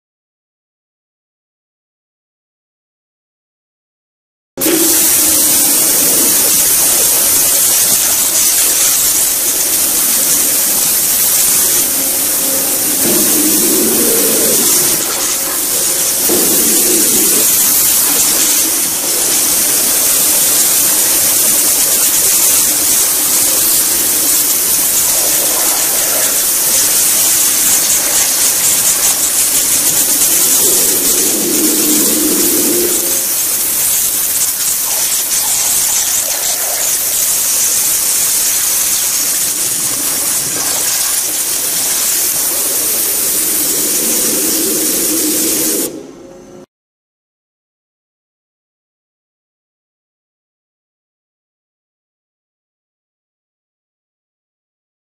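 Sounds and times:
waterjet hissing: 0:04.6 - 0:46.0.

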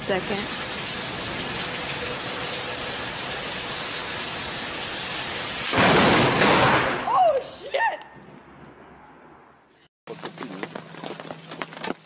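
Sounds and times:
heavy rain: 0:00.0 - 0:06.3.

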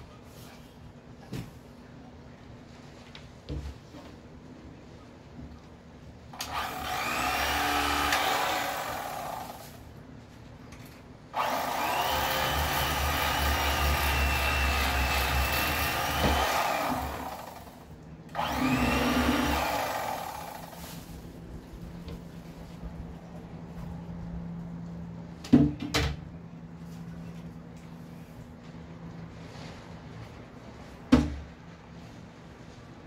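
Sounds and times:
electric knife buzzing: 0:06.4 - 0:09.8, 0:11.4 - 0:20.8.

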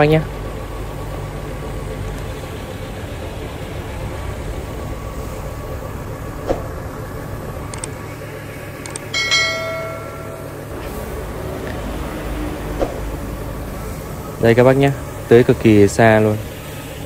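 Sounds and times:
tractor engine humming: 0:00.0 - 0:17.0
bright bell ding: 0:09.1 - 0:10.7.

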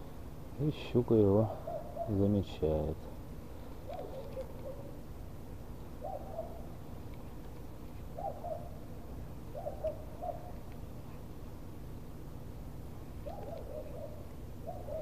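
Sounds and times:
low background noise: 0:00.0 - 0:15.0
bird calling: 0:01.5 - 0:02.3, 0:03.8 - 0:05.0, 0:06.0 - 0:06.7, 0:08.1 - 0:08.8, 0:09.5 - 0:10.6, 0:13.2 - 0:15.0.

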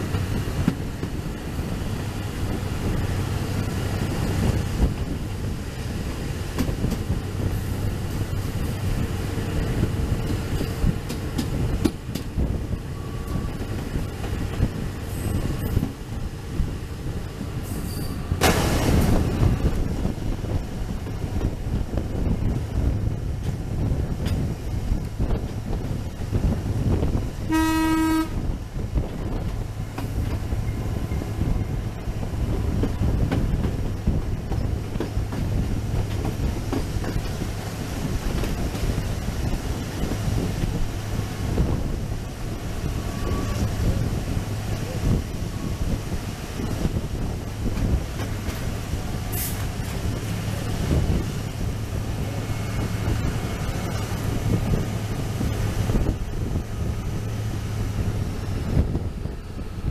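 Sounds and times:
wheels rumbling on track: 0:00.0 - 0:59.9
locomotive horn blast: 0:27.5 - 0:28.6.

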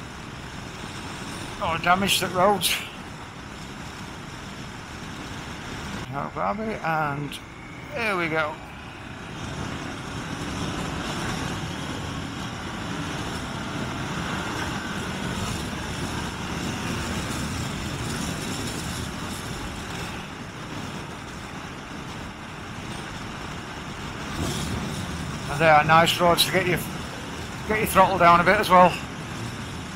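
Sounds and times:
motorcycle engine and road noise: 0:00.0 - 0:29.9
wind rush over microphone: 0:07.4 - 0:29.9.

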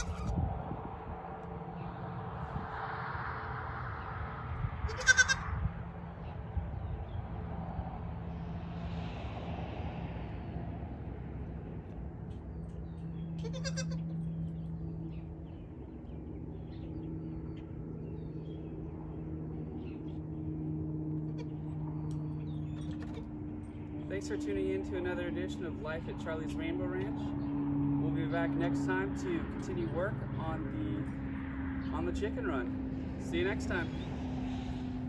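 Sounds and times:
goat kid bleating: 0:00.0 - 0:00.4, 0:04.8 - 0:05.4, 0:13.4 - 0:14.2, 0:21.3 - 0:21.5.

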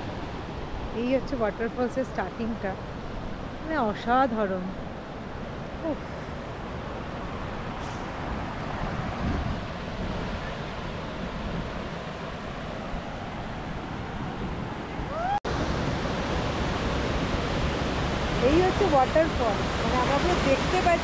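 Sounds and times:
wind on microphone: 0:02.8 - 0:21.0
river water rushing over rocks: 0:14.8 - 0:21.0.

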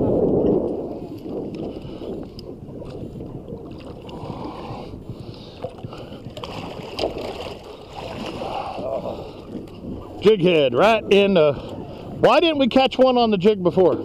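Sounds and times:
water splashing against boat: 0:00.0 - 0:14.0
fish thrashing at surface: 0:06.3 - 0:09.0.

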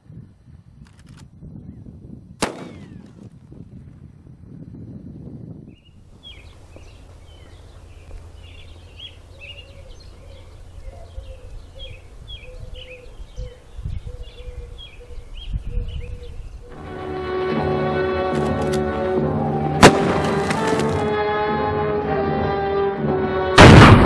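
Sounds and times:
wind rumble on microphone: 0:00.0 - 0:16.9
songbirds chirping: 0:05.4 - 0:17.4.

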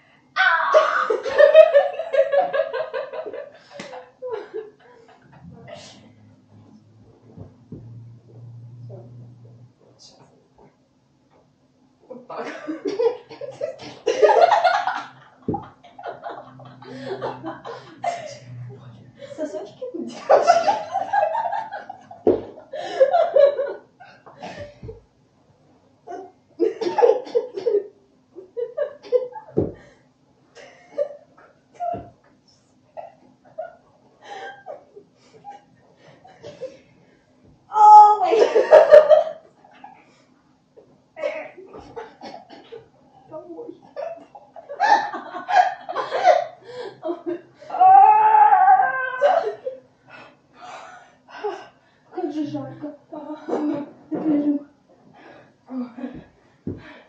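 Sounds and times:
woman laughing breathlessly: 0:16.2 - 0:18.4, 0:22.7 - 0:24.8, 0:33.6 - 0:36.8, 0:44.8 - 0:47.7
young woman laughing: 0:20.0 - 0:23.8, 0:43.9 - 0:47.4, 0:49.2 - 0:49.8.

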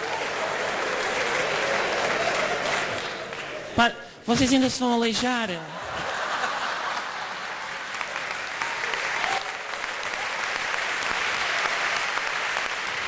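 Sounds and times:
audience applauding: 0:00.0 - 0:03.8, 0:06.2 - 0:13.0.

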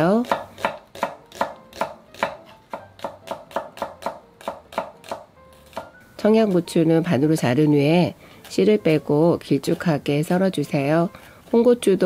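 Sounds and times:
knife chopping on wooden board: 0:00.2 - 0:06.0.

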